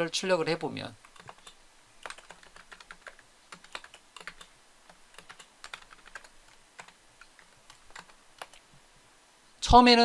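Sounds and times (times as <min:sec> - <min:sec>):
keyboard typing: 0:01.0 - 0:08.7.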